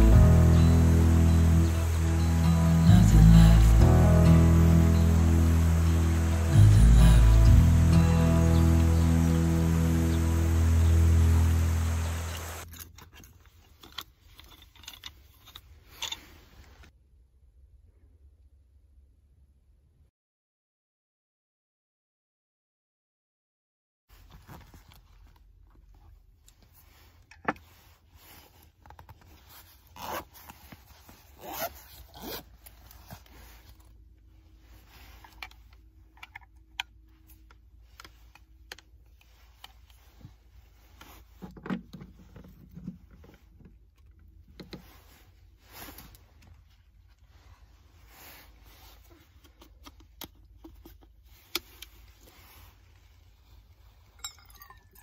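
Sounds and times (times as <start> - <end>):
zipper pulled open: 28.7 - 33.9.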